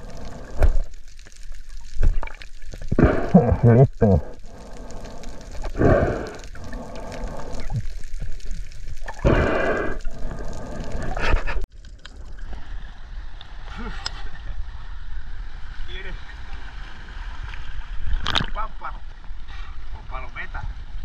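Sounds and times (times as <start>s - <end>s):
water at the surface: 0.0s - 21.0s
muffled underwater gurgling: 2.0s - 11.6s.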